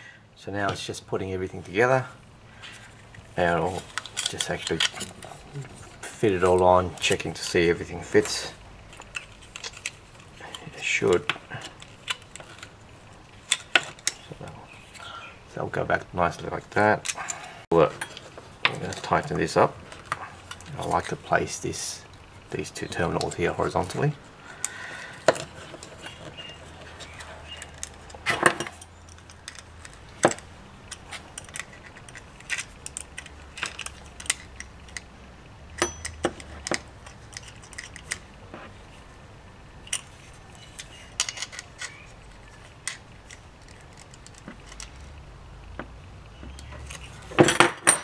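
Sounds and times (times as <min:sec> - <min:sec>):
switch clicks and metallic clinks: 0:35.8 - 0:38.0.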